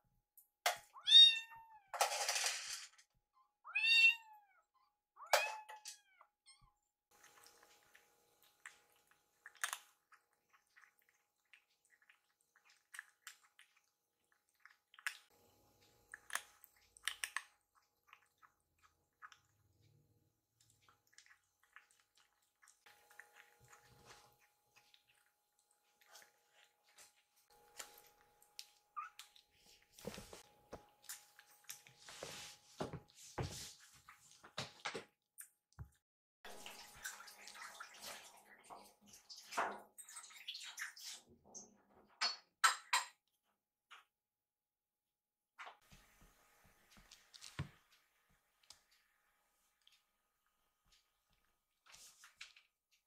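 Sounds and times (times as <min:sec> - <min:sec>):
kittens eating from bowls: 0:07.1 - 0:34.8, 0:46.7 - 0:53.0.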